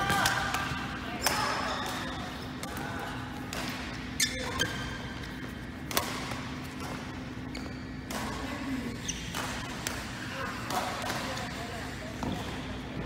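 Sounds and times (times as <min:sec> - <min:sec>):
racket hitting shuttlecock: 0:03.4 - 0:07.2
shoes squeaking on court: 0:03.9 - 0:10.3.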